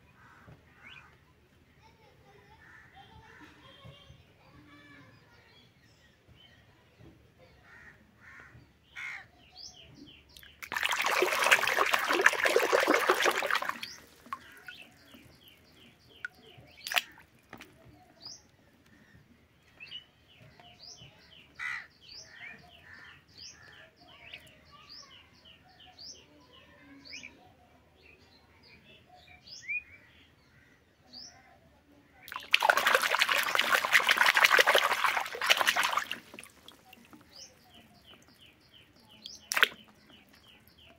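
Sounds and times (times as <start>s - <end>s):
birds chirping faintly: 0.0s - 40.9s
water splashing in a tub: 10.4s - 17.8s, 32.2s - 38.4s, 39.2s - 40.7s.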